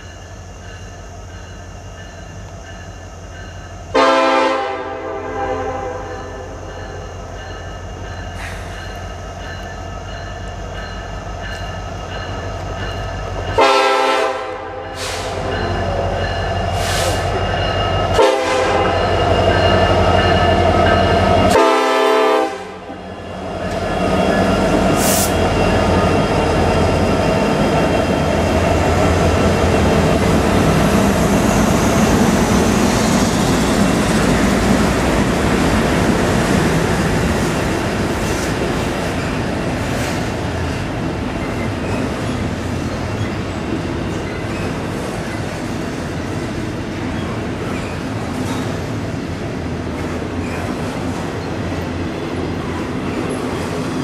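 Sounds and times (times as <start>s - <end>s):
train rolling noise: 0.0s - 54.0s
locomotive air horn: 3.9s - 6.5s, 13.6s - 15.4s, 18.1s - 19.0s, 21.5s - 22.9s.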